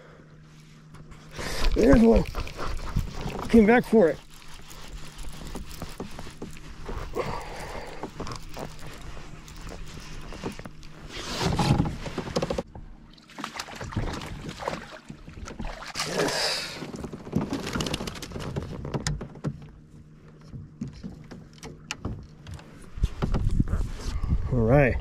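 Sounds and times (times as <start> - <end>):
water splashing: 1.3 - 11.1, 12.5 - 17.6
rod and net clicks and bumps: 1.6 - 12.6, 16.9 - 19.5
gear knocking against kayak hull: 1.7 - 12.9, 16.8 - 23.6.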